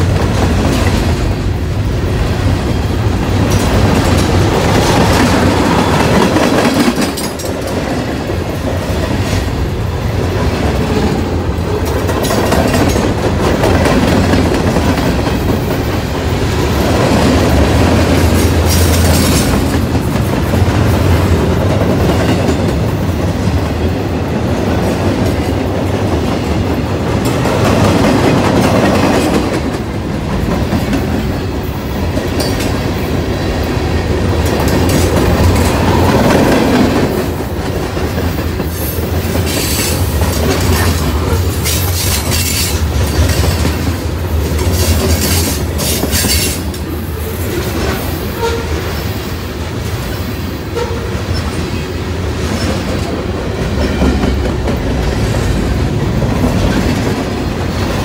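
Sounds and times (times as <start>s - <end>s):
train wheels rumbling: 0.0s - 58.0s
wheels clacking over rail joints: 2.3s - 9.6s, 10.2s - 23.0s, 23.6s - 48.5s.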